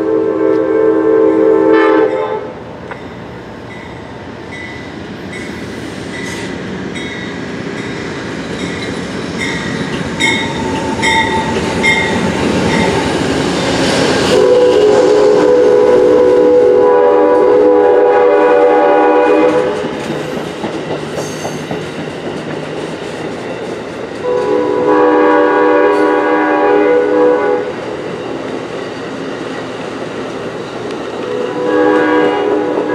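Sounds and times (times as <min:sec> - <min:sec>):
train air horn blasts: 0:00.0 - 0:02.6, 0:14.2 - 0:19.8, 0:24.2 - 0:27.8, 0:31.2 - 0:32.9
train cars rumbling and clattering: 0:02.0 - 0:32.9.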